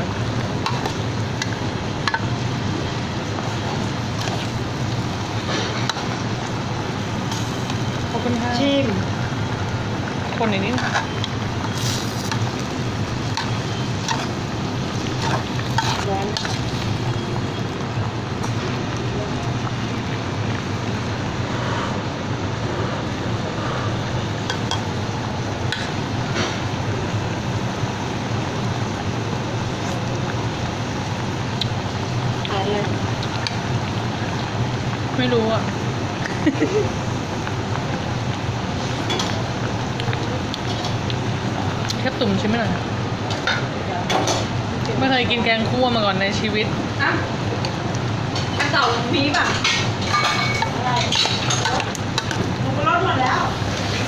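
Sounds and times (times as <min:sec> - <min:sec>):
ladle stirring in metal pot: 0:10.6 - 0:17.2.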